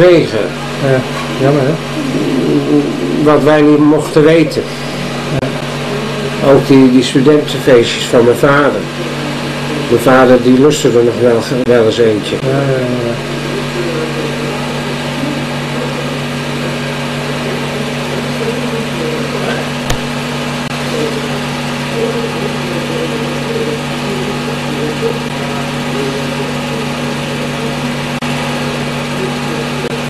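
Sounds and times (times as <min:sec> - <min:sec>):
low hum with hiss: 0:00.0 - 0:30.0.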